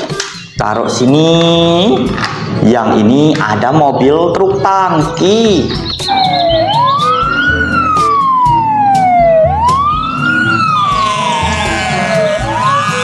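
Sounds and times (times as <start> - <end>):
fire truck siren wailing: 6.1 - 13.0
steady high tone: 6.1 - 13.0.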